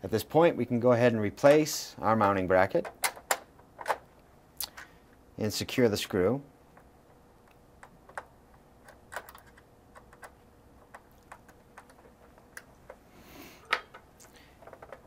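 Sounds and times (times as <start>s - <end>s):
plastic console rustle and click: 7.8s - 13.0s, 14.6s - 15.0s.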